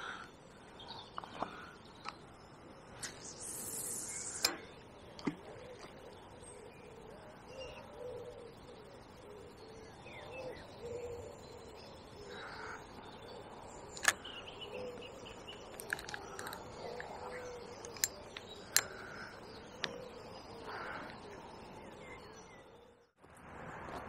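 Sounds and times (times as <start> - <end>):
birds calling: 0.0 - 23.1
sharp clicks: 3.0 - 4.6, 14.0 - 14.3, 15.5 - 17.2, 17.8 - 19.0
harsh caw-like calls: 12.3 - 12.9.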